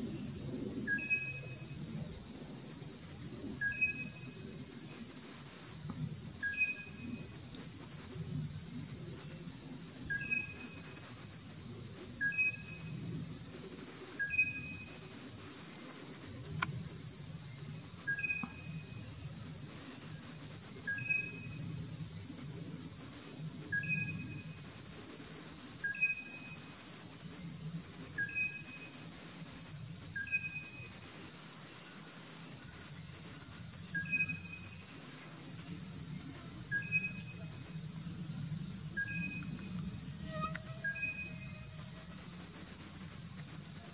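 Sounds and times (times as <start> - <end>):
high-pitched insect drone: 6.4 - 16.7, 17.4 - 22.2, 23.0 - 43.9
two-note animal call: 40.2 - 42.1.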